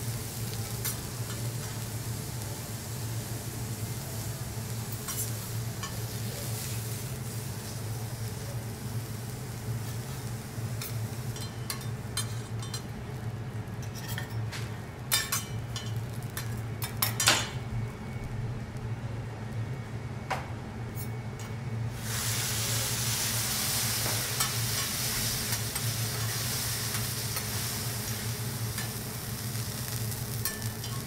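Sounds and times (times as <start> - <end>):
food sizzling on a hot plate: 0.0 - 17.2, 21.9 - 31.0
metal spatulas clinking on griddle: 10.8 - 12.9, 13.8 - 14.4, 15.1 - 17.5, 30.4 - 31.0.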